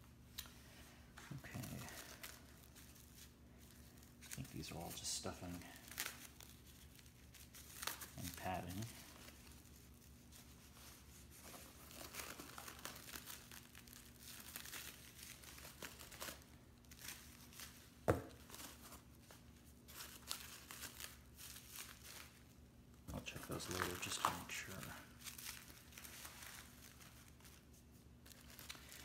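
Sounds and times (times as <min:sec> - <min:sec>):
foam packing sheets rustling: 0:01.2 - 0:22.5, 0:23.2 - 0:29.0.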